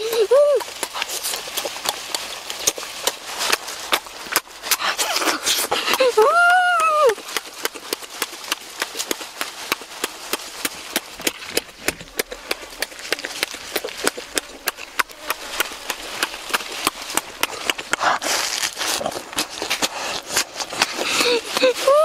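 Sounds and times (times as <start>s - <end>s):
wet chewing and lip-smacking: 0.0s - 22.0s
crunchy bite into lettuce: 12.3s - 21.6s.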